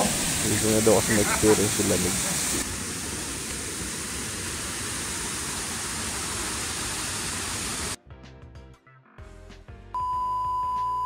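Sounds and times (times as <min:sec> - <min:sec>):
mountain creek rushing: 0:00.0 - 0:08.0.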